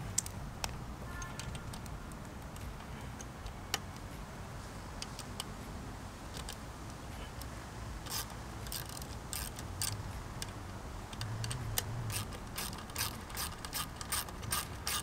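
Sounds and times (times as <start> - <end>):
hand ratchet clicking: 8.0 - 15.0.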